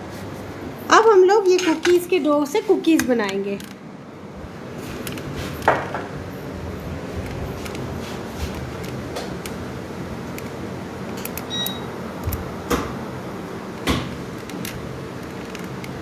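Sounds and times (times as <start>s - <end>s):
room hum: 0.0s - 16.0s
short high beep: 11.5s - 11.9s.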